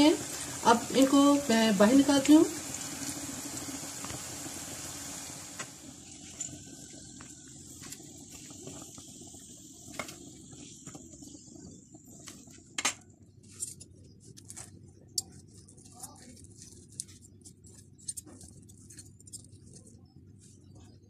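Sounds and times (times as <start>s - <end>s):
oil sizzling: 0.0s - 13.9s.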